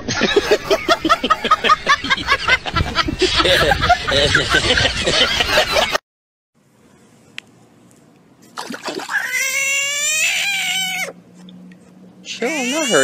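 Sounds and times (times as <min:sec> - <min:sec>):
rustle of handling: 0:06.7 - 0:08.6
frog screaming: 0:09.0 - 0:11.2, 0:12.4 - 0:13.0.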